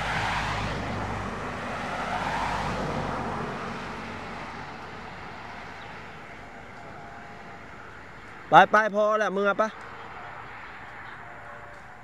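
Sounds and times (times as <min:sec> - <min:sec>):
vehicle passing by: 0:00.0 - 0:08.7.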